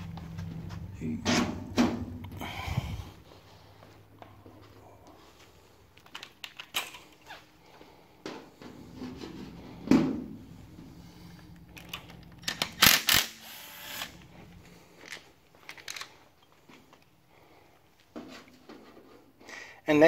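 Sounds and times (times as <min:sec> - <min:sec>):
tools clicking and knocking: 0:06.0 - 0:07.2, 0:11.5 - 0:13.3.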